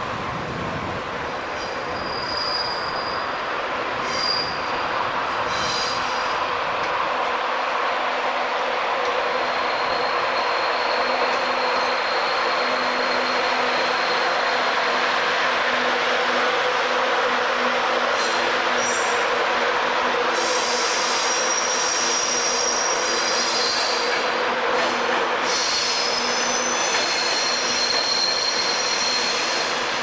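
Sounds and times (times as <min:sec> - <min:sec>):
train rolling past: 0:00.0 - 0:30.0
wheel squeal: 0:01.6 - 0:03.4, 0:04.0 - 0:04.7, 0:09.5 - 0:14.2, 0:20.4 - 0:24.1, 0:25.4 - 0:29.8.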